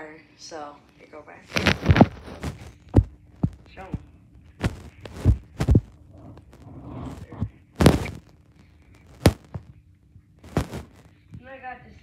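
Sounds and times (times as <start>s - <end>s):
soft rustle: 1.5s - 9.8s, 10.4s - 11.5s.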